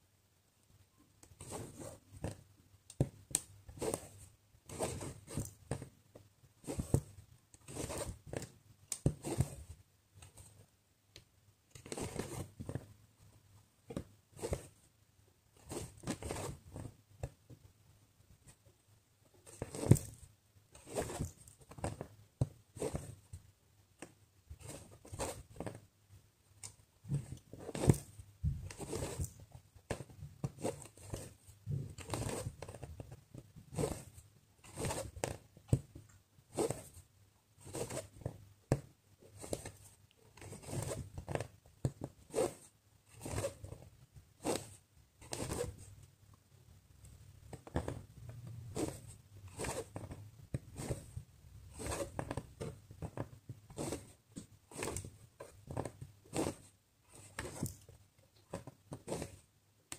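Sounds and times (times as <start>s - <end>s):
thread drawn through fabric: 47.9s - 52.4s.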